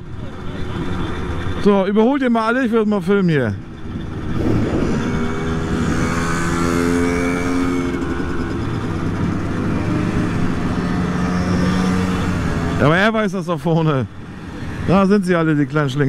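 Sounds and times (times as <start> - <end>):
moped engines running: 0.0 - 16.0
moped passing by: 3.7 - 13.1.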